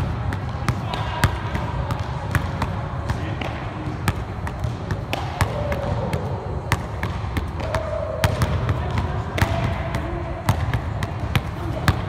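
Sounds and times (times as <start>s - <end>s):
basketballs bouncing on wooden floor: 0.0s - 12.0s.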